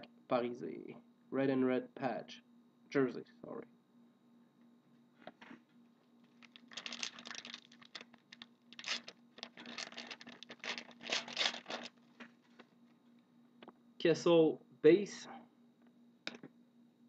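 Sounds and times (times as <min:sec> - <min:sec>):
cards rustling while shuffled: 0:06.3 - 0:12.7.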